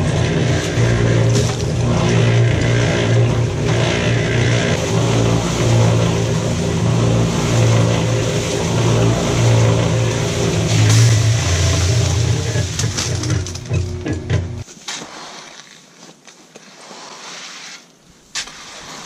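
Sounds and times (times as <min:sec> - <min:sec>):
cement mixer drum turning: 0:00.0 - 0:14.7
motor hum: 0:00.0 - 0:14.7.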